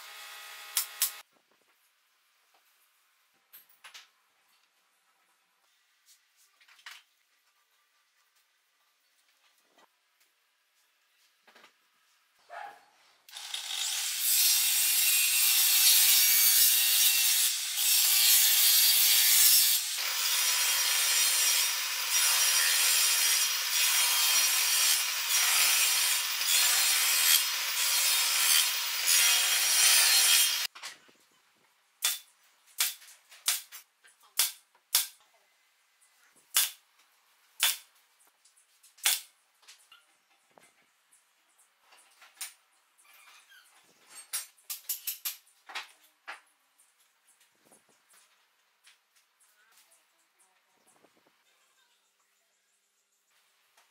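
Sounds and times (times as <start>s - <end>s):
table saw cutting wood: 0.0s - 1.2s, 13.3s - 30.7s.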